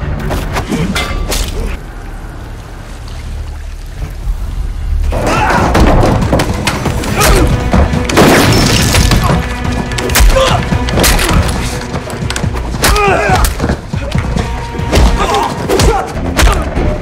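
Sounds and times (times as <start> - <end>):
dramatic music: 4.6 - 17.0
men grunting and shouting: 14.9 - 17.0.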